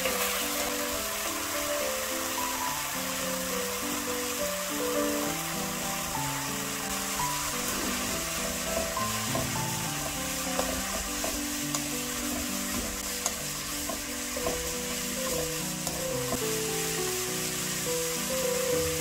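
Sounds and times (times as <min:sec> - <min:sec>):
background music with held notes: 0:00.0 - 0:19.0
food sizzling in hot oil: 0:00.0 - 0:19.0
utensil tapping pan: 0:06.6 - 0:19.0.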